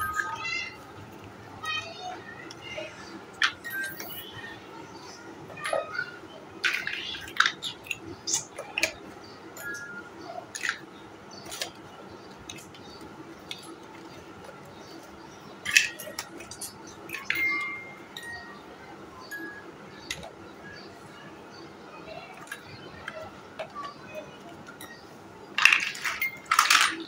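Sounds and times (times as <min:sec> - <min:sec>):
plastic building blocks clattering: 0:03.4 - 0:04.2, 0:06.6 - 0:09.0, 0:09.6 - 0:15.0, 0:15.6 - 0:17.8, 0:22.3 - 0:27.0.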